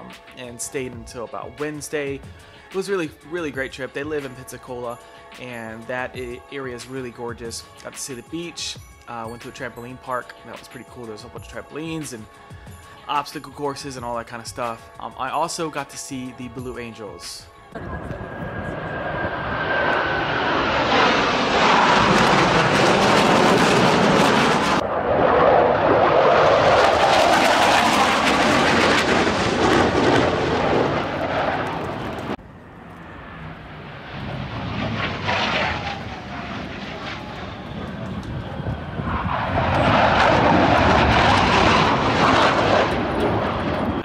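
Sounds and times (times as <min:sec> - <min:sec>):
falling jet whine: 0:16.6 - 0:44.0
jet engines passing overhead: 0:17.7 - 0:44.0.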